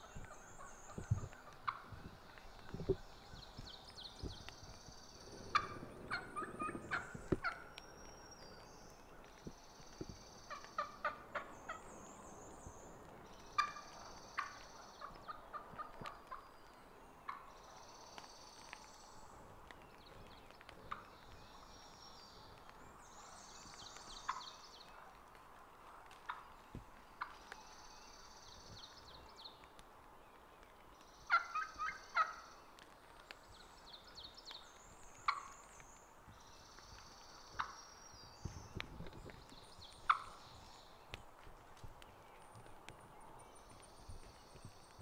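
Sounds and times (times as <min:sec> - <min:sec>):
turkey clucking and yelping: 0:00.2 - 0:02.0, 0:05.5 - 0:07.7, 0:13.6 - 0:16.4, 0:31.3 - 0:32.4, 0:37.6 - 0:37.8, 0:40.1 - 0:40.4.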